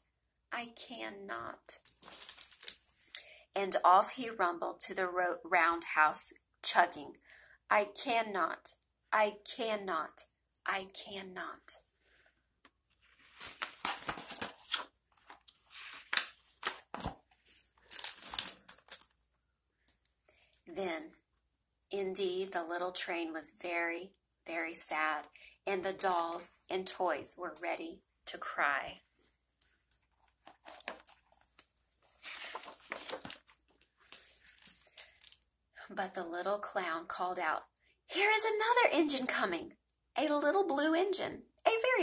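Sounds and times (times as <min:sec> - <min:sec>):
book page turning: 0:12.7 - 0:19.2, 0:29.7 - 0:35.4.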